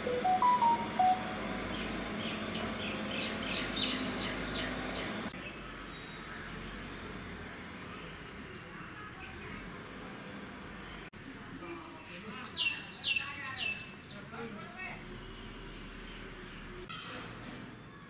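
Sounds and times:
birds chirping: 0:00.0 - 0:06.4.

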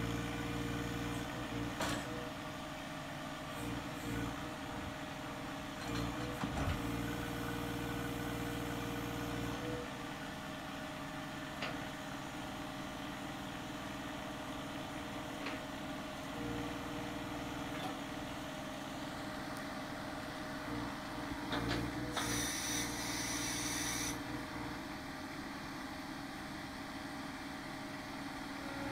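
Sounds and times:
tractor diesel engine running: 0:16.9 - 0:28.9
hydraulic whine: 0:21.4 - 0:24.2.

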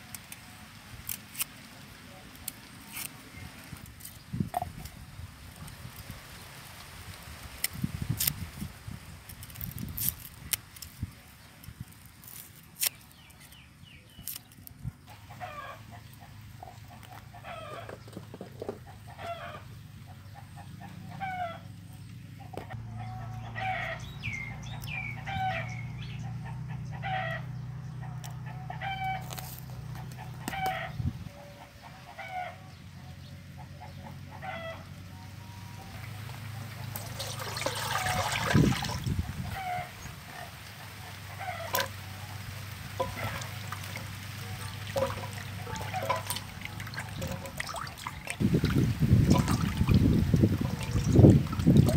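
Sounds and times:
chickens clucking: 0:15.1 - 0:34.9, 0:35.8 - 0:51.9.

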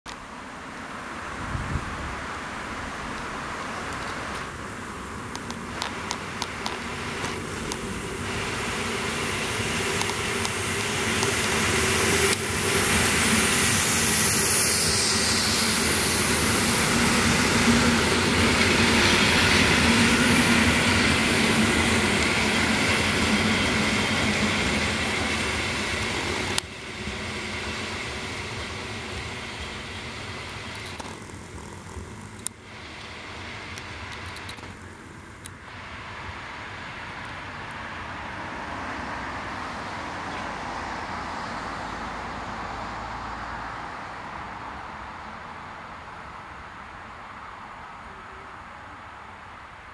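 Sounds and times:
electric train hum: 0:00.1 - 0:49.9
train wheels rumbling and hissing: 0:00.1 - 0:49.9
wheels clicking on rails: 0:03.1 - 0:38.2.

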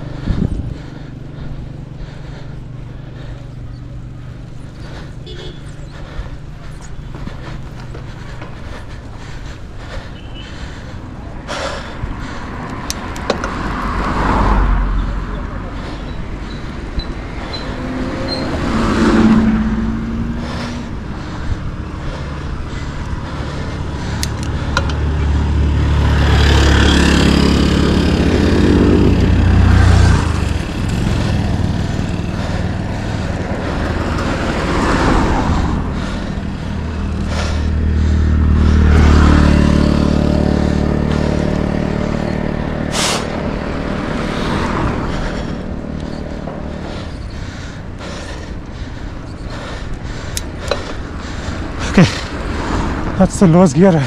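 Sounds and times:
vehicles passing: 0:00.0 - 0:54.0.

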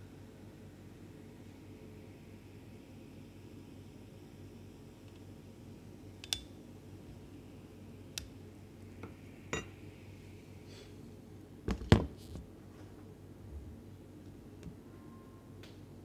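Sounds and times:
glassware and utensils clinking: 0:09.5 - 0:09.8.

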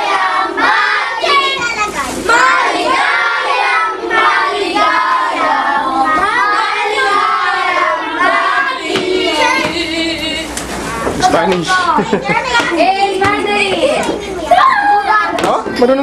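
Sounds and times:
children singing together: 0:00.0 - 0:11.2.

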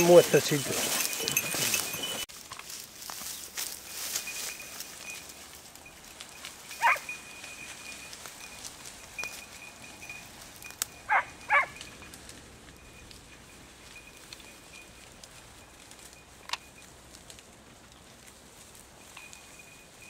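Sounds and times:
hound yelping: 0:06.7 - 0:07.2, 0:11.0 - 0:11.9.

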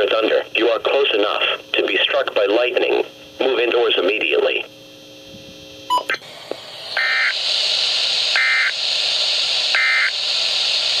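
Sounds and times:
radio hiss: 0:00.0 - 0:04.7, 0:06.1 - 0:11.0
brief tone: 0:05.9 - 0:06.2
electronic data bursts: 0:07.0 - 0:07.4, 0:08.4 - 0:08.8, 0:09.8 - 0:10.2.

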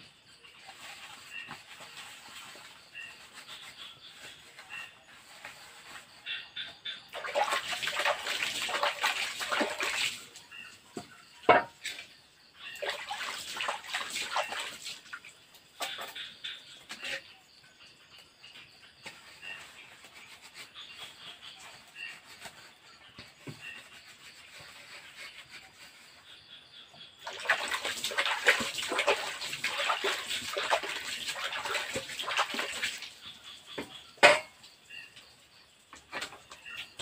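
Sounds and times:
water sloshing and splashing: 0:06.9 - 0:17.3, 0:27.2 - 0:35.1
rubbing of plates: 0:33.8 - 0:34.6.

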